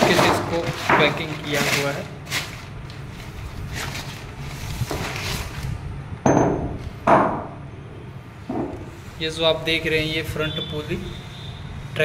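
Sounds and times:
plastic packing crinkling: 0.0 - 5.8.

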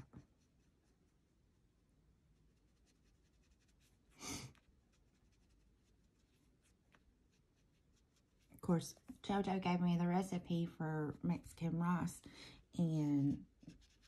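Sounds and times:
pencil scratching on paper: 0.0 - 1.3, 2.4 - 8.9, 13.6 - 14.0.

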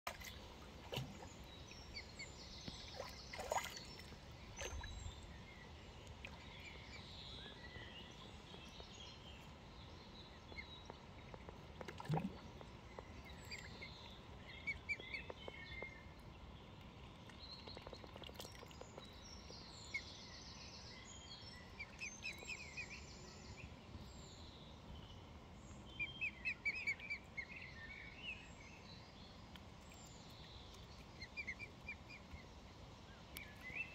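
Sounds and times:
steady low hiss: 18.8 - 33.9.

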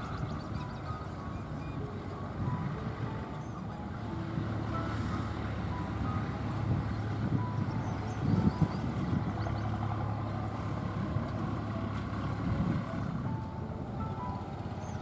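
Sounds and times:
low engine-like hum: 0.0 - 15.0.

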